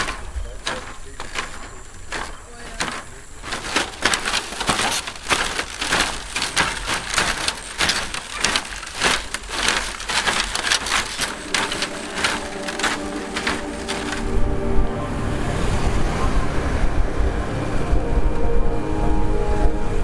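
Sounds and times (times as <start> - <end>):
bamboo creaking and crackling: 0.0 - 14.6
footsteps on bamboo bridge: 0.0 - 14.7.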